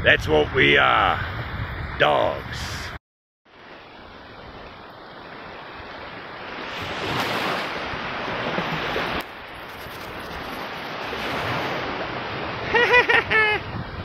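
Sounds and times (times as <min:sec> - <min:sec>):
wind on microphone: 0:00.0 - 0:03.0, 0:13.3 - 0:14.0
small waves washing on sand: 0:03.5 - 0:12.7.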